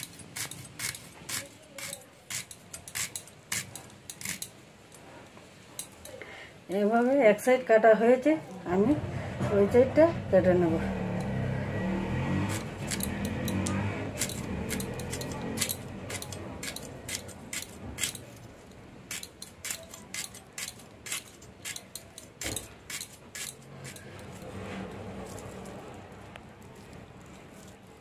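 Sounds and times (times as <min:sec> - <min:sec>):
radish snapping on blade: 0:12.5 - 0:18.3.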